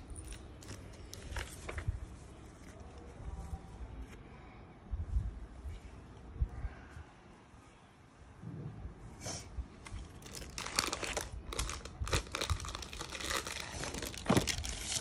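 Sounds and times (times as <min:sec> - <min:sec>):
paper and plastic wrapping crinkling: 0:10.0 - 0:15.0.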